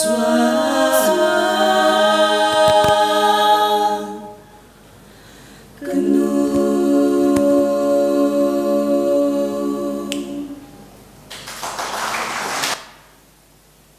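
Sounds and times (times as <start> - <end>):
female vocal group singing harmony: 0.0 - 4.9, 5.5 - 11.0
breath: 4.4 - 5.8.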